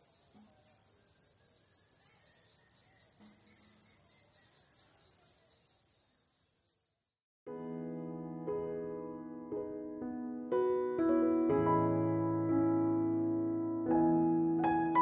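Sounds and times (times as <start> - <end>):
insects trilling: 0.0 - 7.2.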